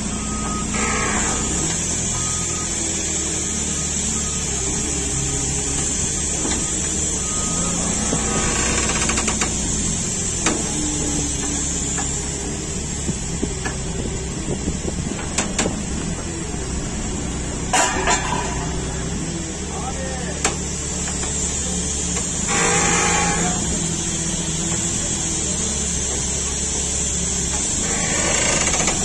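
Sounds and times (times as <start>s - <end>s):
low engine hum: 0.0s - 29.0s.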